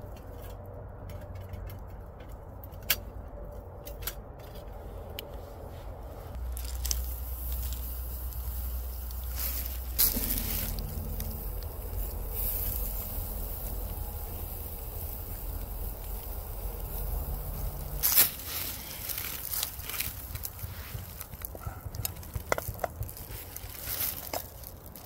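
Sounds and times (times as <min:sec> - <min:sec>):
wood fire crackling: 0:05.7 - 0:25.0
meat sizzling: 0:06.4 - 0:21.4.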